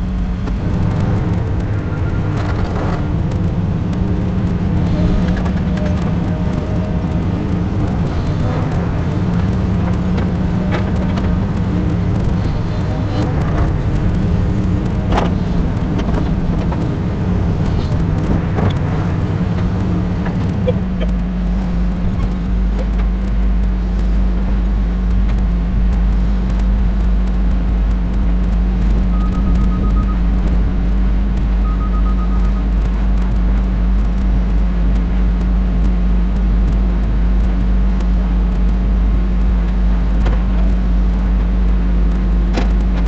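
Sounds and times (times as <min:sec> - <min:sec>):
construction machinery rumble: 0:00.0 - 0:43.0
short high beeps: 0:29.1 - 0:30.3, 0:31.6 - 0:32.6.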